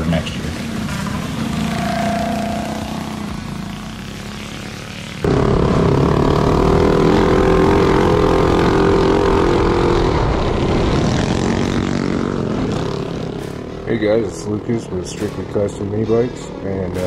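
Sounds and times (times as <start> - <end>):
minibike engine running hard: 0.0 - 17.0.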